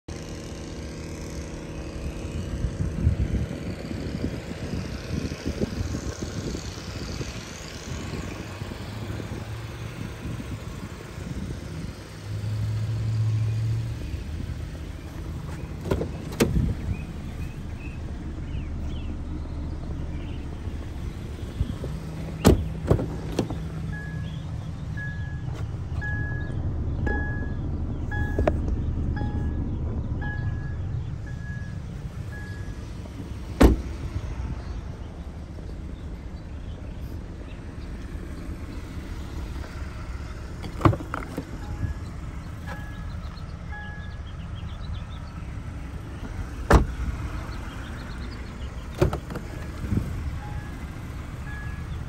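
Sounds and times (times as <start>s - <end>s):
low rumble of traffic: 0.0s - 52.0s
car door clicks: 15.8s - 16.7s, 22.3s - 23.6s, 33.6s - 34.0s, 40.6s - 41.9s, 46.7s - 47.1s, 48.9s - 49.8s.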